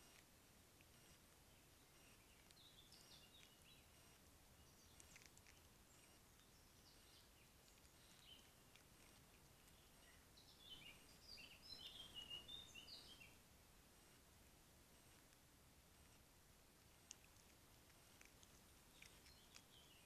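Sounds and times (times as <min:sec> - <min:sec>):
background hiss: 0:00.0 - 0:20.0
songbird twittering: 0:01.5 - 0:04.0, 0:09.6 - 0:13.4.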